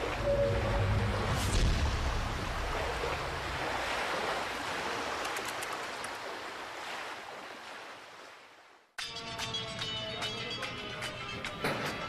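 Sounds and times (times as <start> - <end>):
churning sea water: 0.0 - 9.2.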